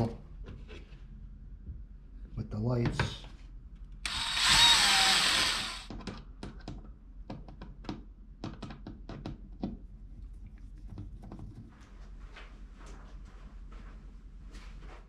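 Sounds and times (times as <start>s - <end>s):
cordless drill: 4.0s - 5.9s.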